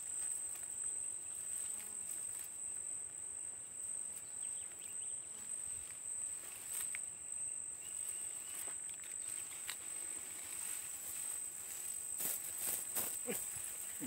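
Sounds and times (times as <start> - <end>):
insects chirring: 0.0 - 14.0
net rustling on grass: 8.5 - 14.0.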